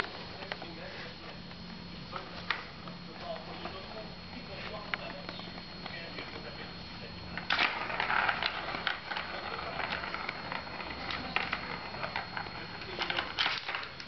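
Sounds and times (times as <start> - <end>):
plastic ball rolling and rattling: 7.3 - 14.0.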